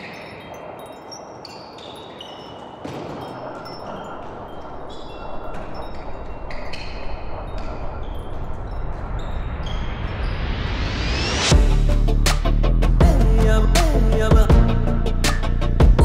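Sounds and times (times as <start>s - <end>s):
chime-like notes: 0.0s - 10.7s.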